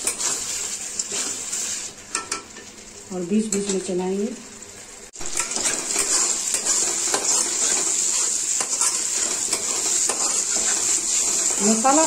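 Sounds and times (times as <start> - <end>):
spice paste sizzling in oil: 0.0 - 12.0
metal spatula scraping pan: 5.3 - 12.0.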